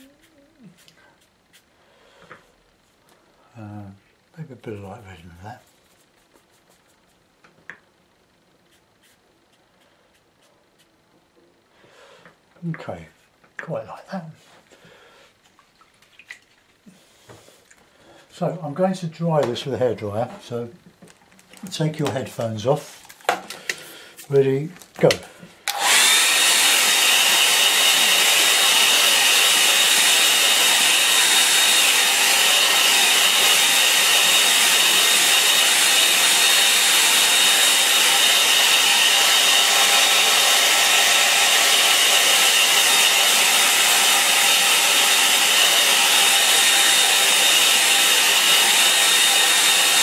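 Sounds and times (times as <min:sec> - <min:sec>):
hairdryer blowing air: 0:25.0 - 0:50.0.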